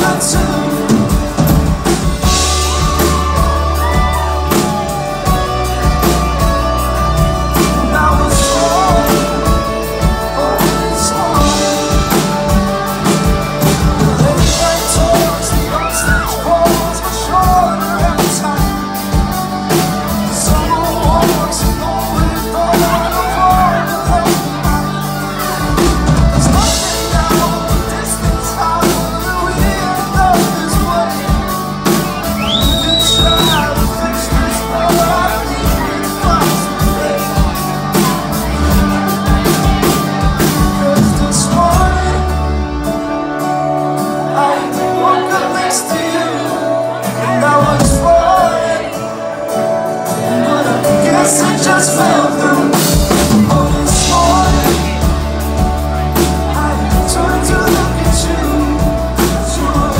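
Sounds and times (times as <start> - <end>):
live rock band playing: 0.0 - 59.9
male lead vocal: 0.0 - 59.9
high whistle: 32.0 - 33.8.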